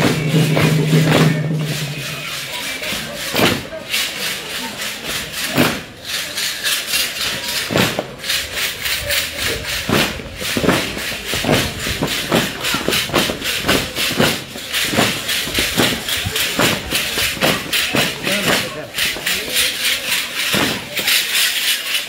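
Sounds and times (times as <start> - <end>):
jingle rattle sticks shaken: 0.0 - 22.0.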